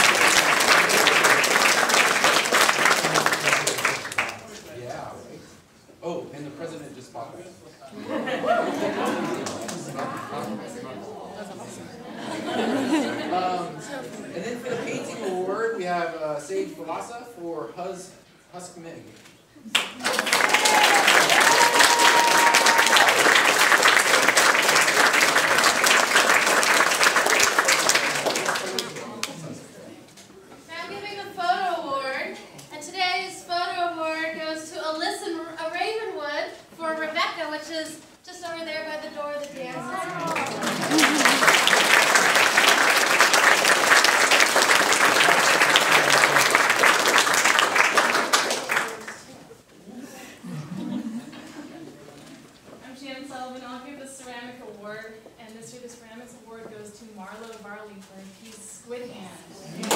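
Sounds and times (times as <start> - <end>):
crowd applauding: 0.0 - 4.6, 8.7 - 10.4, 19.7 - 29.5, 39.8 - 49.3.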